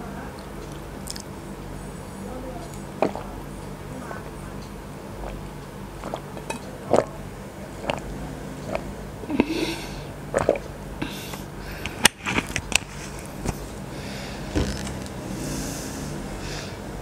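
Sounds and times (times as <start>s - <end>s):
mouth sounds of drinking and eating: 0.0s - 12.6s.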